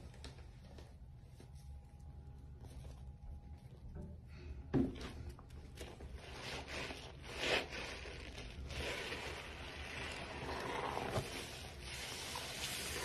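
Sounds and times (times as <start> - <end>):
sponge squelching lather: 5.8 - 13.0.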